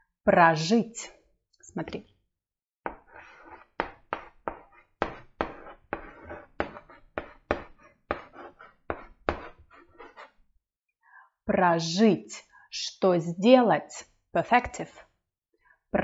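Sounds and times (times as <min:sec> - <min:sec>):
chalk tapping and scratching on blackboard: 0:02.9 - 0:10.4.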